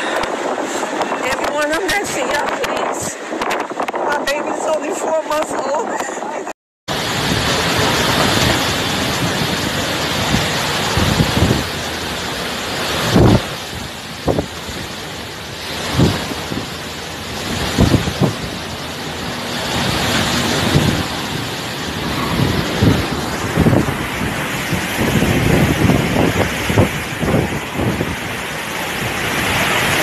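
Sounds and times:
driving rain: 0:00.0 - 0:04.4, 0:06.9 - 0:30.0
hurricane wind: 0:00.0 - 0:30.0
wind gusts thumping microphone: 0:00.0 - 0:30.0.

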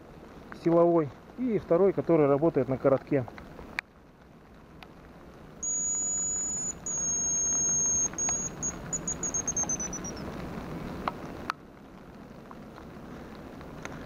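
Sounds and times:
high lure whistle: 0:05.6 - 0:10.2.

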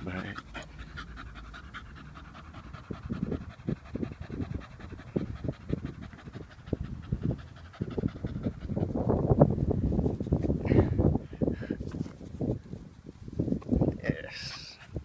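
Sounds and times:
dog panting: 0:00.0 - 0:09.3, 0:14.4 - 0:15.0.

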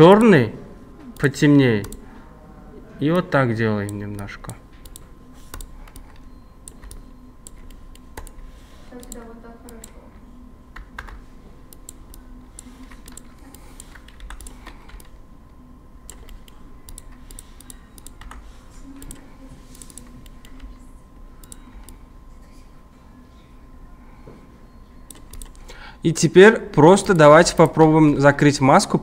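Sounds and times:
faint steady hum: 0:00.0 - 0:29.0
keyboard keys clicking: 0:03.8 - 0:08.4, 0:10.8 - 0:15.2, 0:16.1 - 0:18.4, 0:25.1 - 0:25.6.

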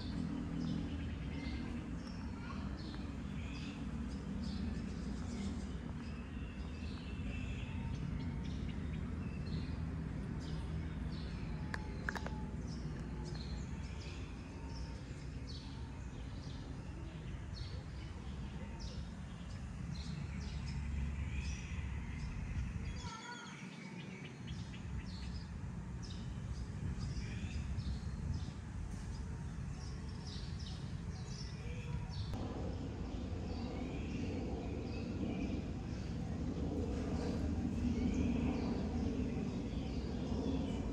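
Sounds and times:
small birds chirping: 0:00.0 - 0:40.9
low rumble: 0:24.8 - 0:40.9.

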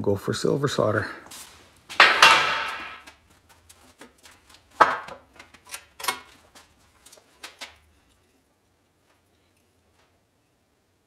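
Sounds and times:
tools set down on workbench: 0:01.9 - 0:03.1, 0:04.8 - 0:05.2.

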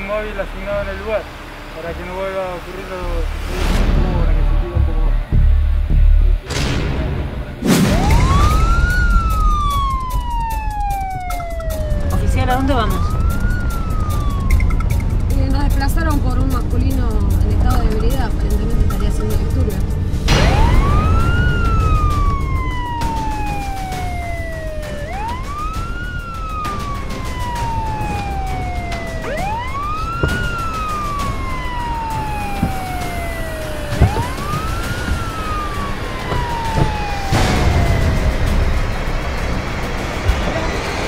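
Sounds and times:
low vehicle rumble: 0:00.0 - 0:41.0
police siren wailing: 0:07.8 - 0:17.0, 0:20.3 - 0:41.0.

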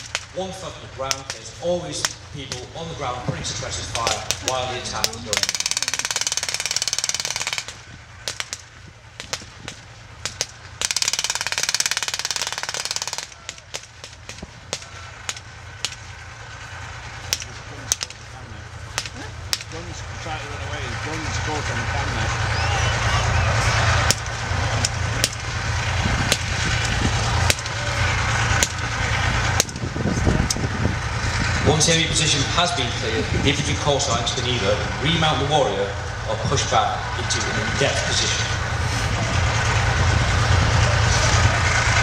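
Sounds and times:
low rumble: 0:00.0 - 0:42.0
machine-gun bursts: 0:05.3 - 0:08.6, 0:10.8 - 0:14.2.

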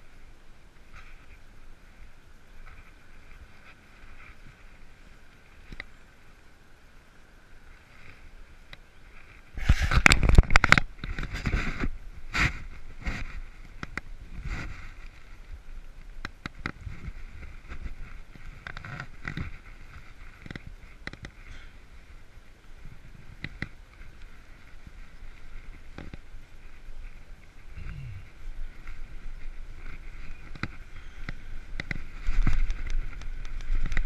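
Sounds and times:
bicycle rattling on concrete: 0:16.3 - 0:22.2, 0:28.6 - 0:34.0.

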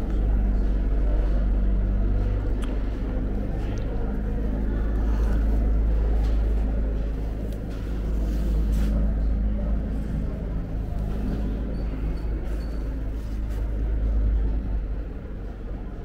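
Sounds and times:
low mechanical hum and rumble: 0:00.0 - 0:16.0.

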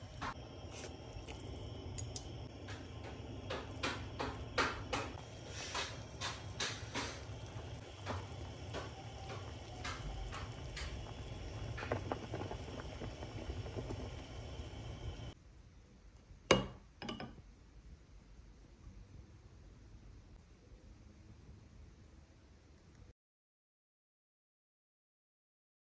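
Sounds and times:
soup bubbling in a pot: 0:00.0 - 0:15.4
ladle clinking in pot: 0:16.5 - 0:17.4.

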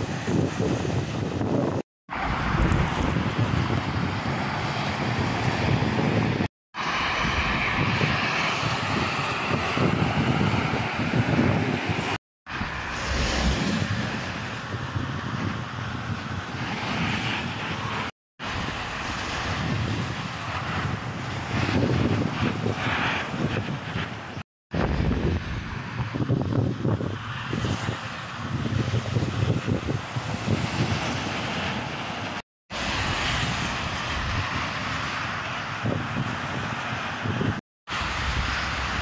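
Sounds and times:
heavy truck traffic: 0:06.8 - 0:16.1.

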